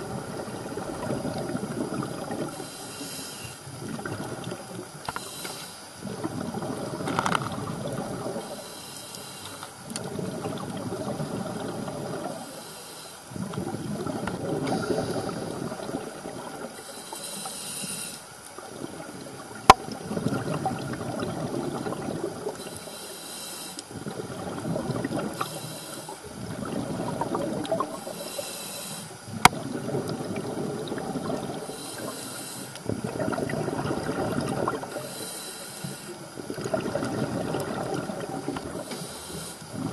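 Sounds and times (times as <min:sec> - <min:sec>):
exhaled bubbles rushing: 0:00.0 - 0:02.6, 0:03.7 - 0:05.1, 0:06.0 - 0:08.5, 0:10.0 - 0:12.4, 0:13.3 - 0:16.8, 0:18.6 - 0:22.6, 0:23.9 - 0:25.6, 0:26.2 - 0:28.1, 0:29.2 - 0:32.1, 0:32.9 - 0:35.1, 0:36.2 - 0:39.0, 0:39.6 - 0:39.9
regulator hiss on inhale: 0:02.2 - 0:19.0, 0:22.4 - 0:24.3, 0:25.1 - 0:33.1, 0:34.7 - 0:36.6, 0:38.4 - 0:39.9.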